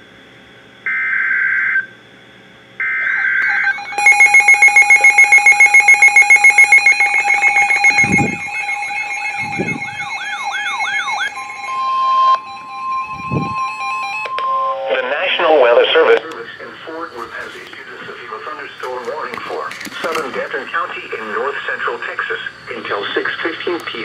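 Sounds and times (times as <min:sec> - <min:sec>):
warbling siren tones: 0:02.8 - 0:15.8
buzzy data tone bursts: 0:02.9 - 0:17.2
rapid alert beeping: 0:03.2 - 0:14.2.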